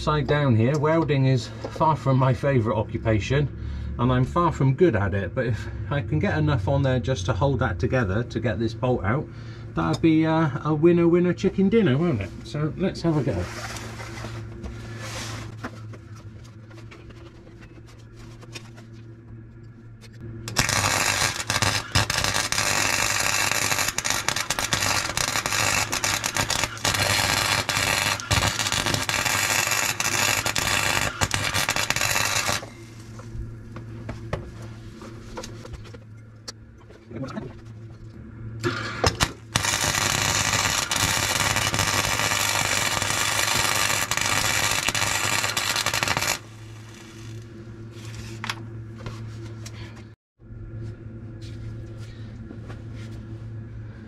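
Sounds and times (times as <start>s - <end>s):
low hum: 0.0s - 54.0s
arc welder crackling and hissing: 13.1s - 15.5s, 20.4s - 33.8s, 38.6s - 48.6s.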